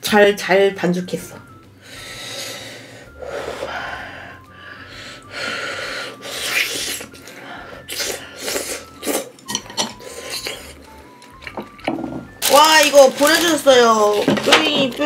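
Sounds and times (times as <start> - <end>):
person blowing on spoon: 1.8 - 10.9
wet mouth eating sounds: 6.2 - 11.9.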